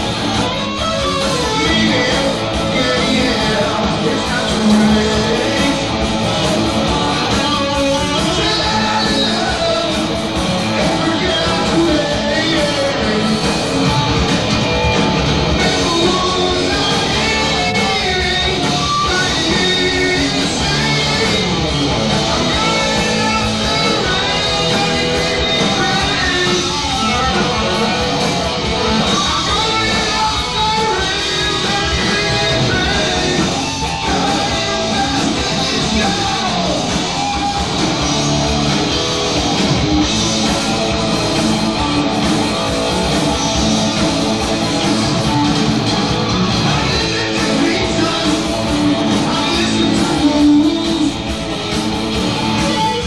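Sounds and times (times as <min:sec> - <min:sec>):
bass guitar: 0:00.0 - 0:53.0
distorted electric guitar: 0:00.0 - 0:53.0
drums: 0:00.0 - 0:53.0
person singing: 0:01.3 - 0:14.2, 0:15.5 - 0:27.9, 0:28.9 - 0:37.7, 0:46.5 - 0:51.3.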